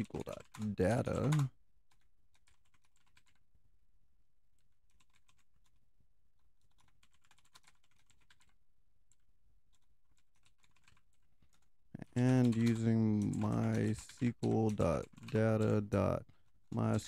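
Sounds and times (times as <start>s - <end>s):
faint typing on keyboard: 0.0s - 3.6s, 4.5s - 17.0s.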